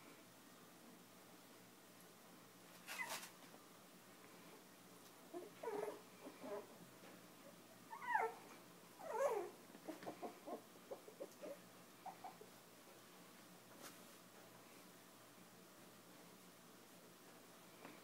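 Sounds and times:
puppy yips: 2.9 - 3.3, 7.9 - 8.4
puppies whimpering and squealing: 5.3 - 6.7, 7.9 - 12.5.

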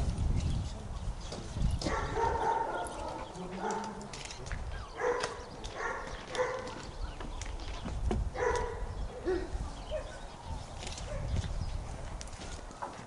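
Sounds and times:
dog yipping and barking: 1.9 - 3.8, 4.9 - 6.8, 8.4 - 10.2.

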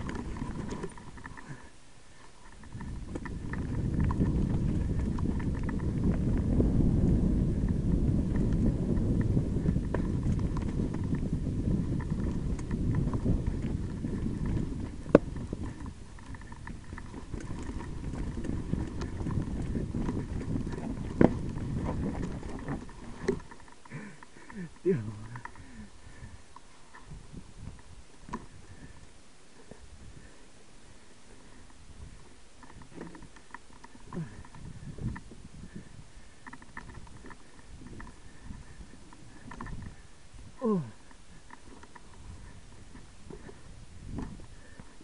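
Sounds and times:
mountain bike clattering over rocks: 0.0 - 1.7, 2.4 - 6.6, 7.8 - 26.3, 32.6 - 40.0.

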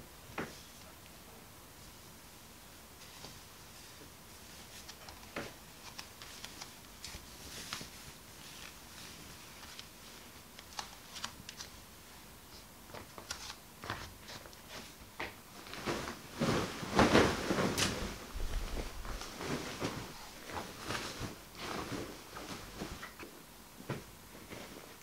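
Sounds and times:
bedding rustling and flapping: 2.9 - 11.8, 13.8 - 23.2, 23.8 - 25.0.

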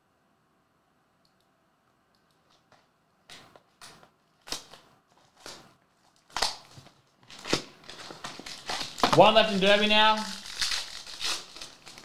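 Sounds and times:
plastic wrapping crinkling: 4.4 - 12.0.

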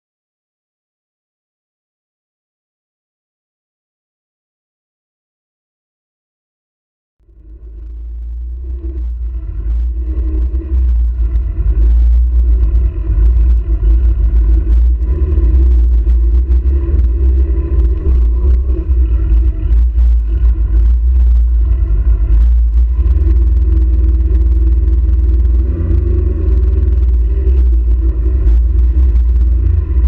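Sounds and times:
race car engine rumble: 7.2 - 30.0.

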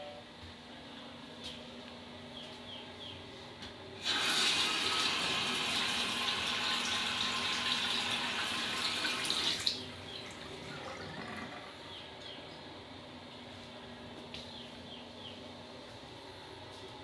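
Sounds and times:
faucet water splashing into sink: 4.0 - 10.4.

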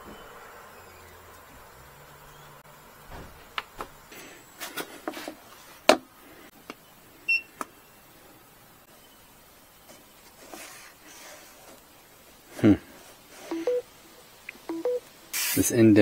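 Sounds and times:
short high beep: 13.5 - 13.8.

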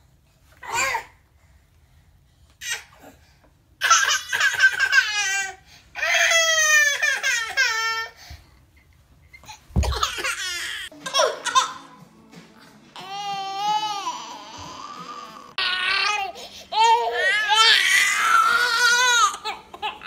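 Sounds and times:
toddler wailing cry: 3.8 - 8.2, 13.0 - 20.0.

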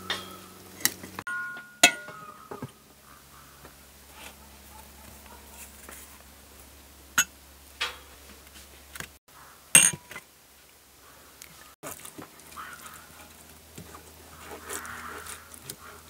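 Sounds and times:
dishes and utensils clinking: 0.0 - 2.7.

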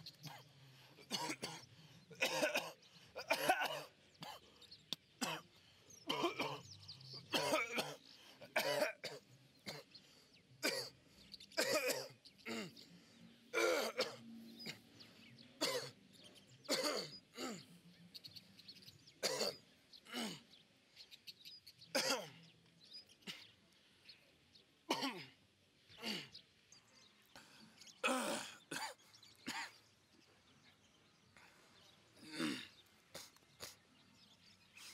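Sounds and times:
man coughing: 1.0 - 1.6, 2.2 - 4.4, 6.1 - 9.9, 10.6 - 11.0, 11.6 - 12.8, 13.6 - 14.8, 15.6 - 16.0, 16.7 - 17.7, 22.0 - 22.4, 24.9 - 25.4, 28.0 - 29.8.

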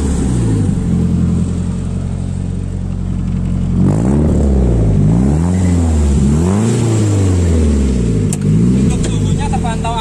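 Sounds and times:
car engine idling and revving: 0.0 - 10.0.

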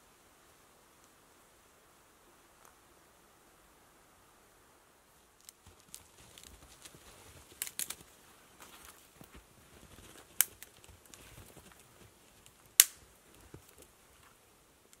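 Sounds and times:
branches rustling: 5.1 - 15.0
dry twigs snapping: 5.4 - 8.1, 10.0 - 13.9.

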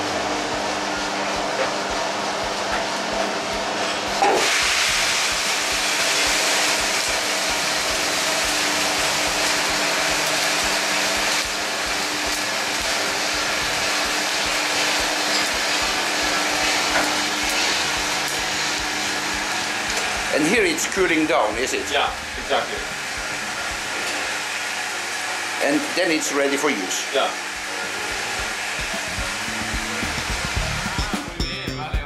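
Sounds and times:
roaster machine hum: 0.0 - 32.0
coffee beans pouring rattle: 4.4 - 22.8.

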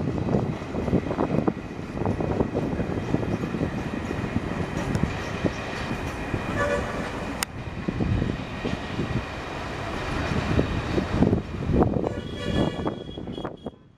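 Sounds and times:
train wheels clattering over rail joints: 0.1 - 7.6
short horn toot: 12.0 - 13.9.

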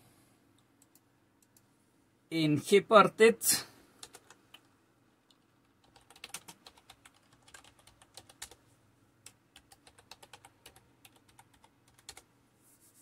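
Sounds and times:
faint keyboard typing: 0.5 - 1.7, 4.0 - 12.3.

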